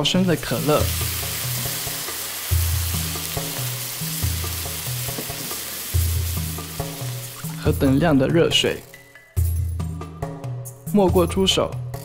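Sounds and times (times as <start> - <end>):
liquid sizzling in a wok: 0.0 - 7.7
soft background music: 0.0 - 12.0.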